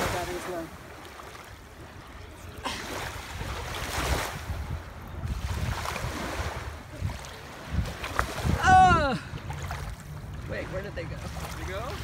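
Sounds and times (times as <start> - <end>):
surf washing up beach: 0.0 - 12.0
wind rumbling on microphone: 3.2 - 12.0.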